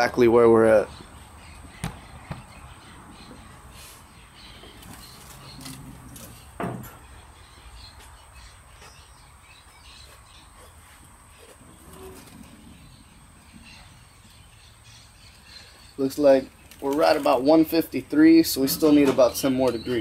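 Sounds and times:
birds calling: 0:00.0 - 0:20.0.

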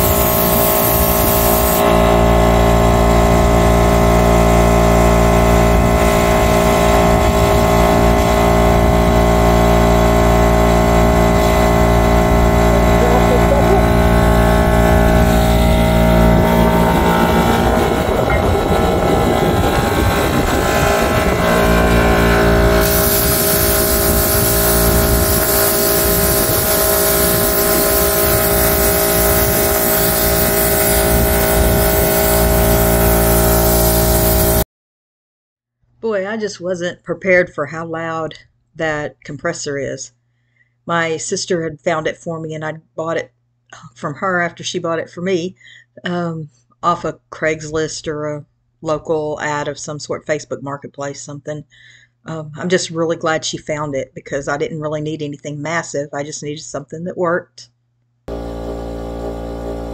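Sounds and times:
spray gun air hissing: 0:00.0 - 0:01.8, 0:22.8 - 0:34.6
air compressor running: 0:00.0 - 0:34.6, 0:58.3 - 0:59.9.

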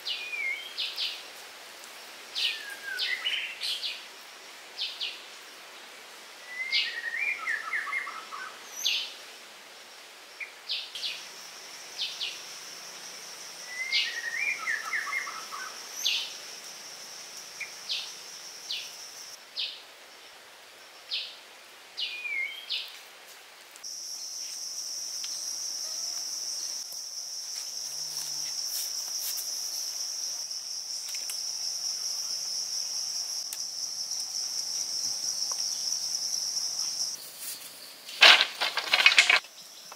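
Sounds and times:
high-pitched insect buzz: 0:23.9 - 0:38.0.

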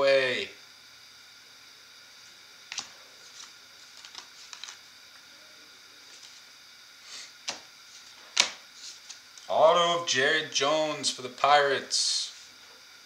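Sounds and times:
steady faint hiss: 0:00.0 - 0:13.0
trading cards clicking: 0:02.7 - 0:04.8.

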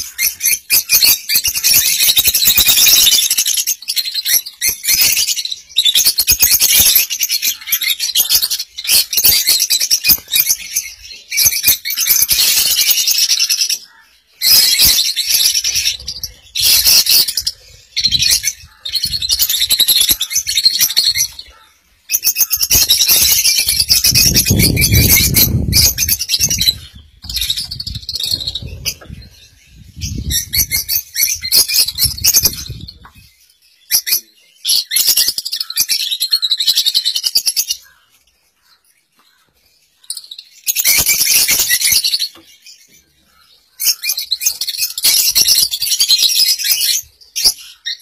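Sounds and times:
lovebirds chattering and screeching: 0:00.0 - 0:48.0.

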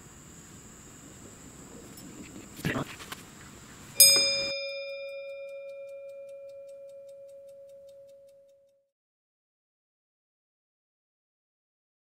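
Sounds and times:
background noise: 0:00.0 - 0:08.8
bell-like chime: 0:04.0 - 0:08.7.

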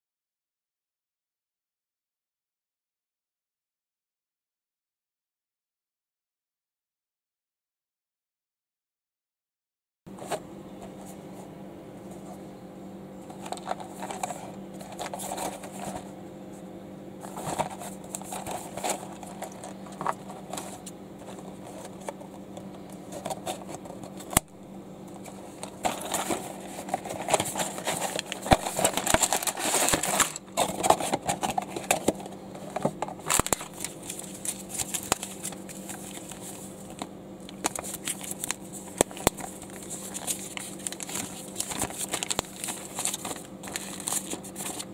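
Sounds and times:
steady low hum: 0:10.1 - 0:44.9
packaging crinkling and rustling: 0:13.3 - 0:16.1, 0:17.2 - 0:24.5, 0:25.1 - 0:44.9.

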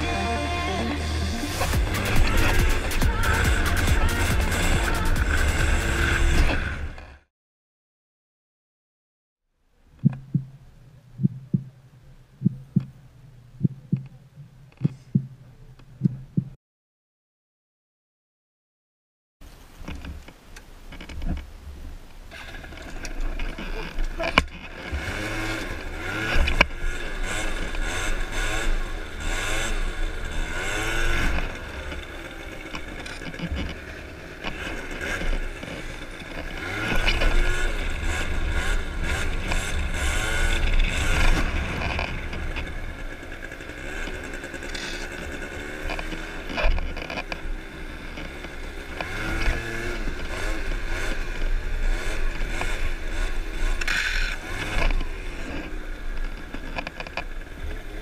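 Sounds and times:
scooter engine revving: 0:00.0 - 0:07.2, 0:22.3 - 0:58.0.

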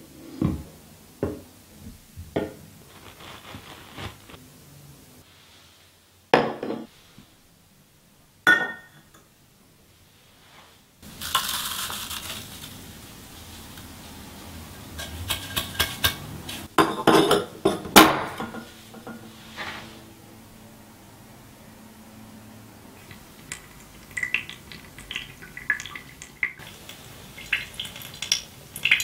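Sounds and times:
ground coffee pouring into filter: 0:02.8 - 0:04.4, 0:11.0 - 0:13.0.

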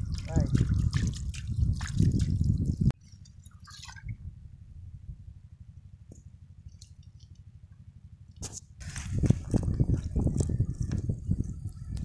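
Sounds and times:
dripping and splashing water: 0:00.0 - 0:04.2
low steady rumble: 0:00.0 - 0:12.0.

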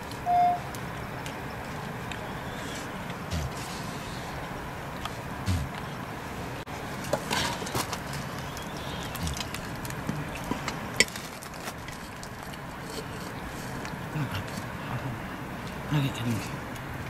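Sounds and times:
background hiss: 0:00.0 - 0:11.0.

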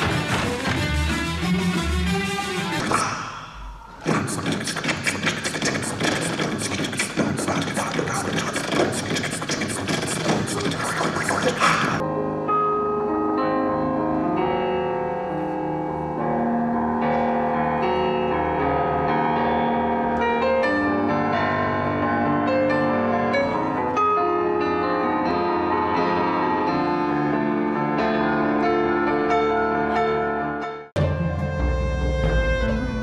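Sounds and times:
piano music: 0:00.0 - 0:04.1, 0:10.8 - 0:33.0.

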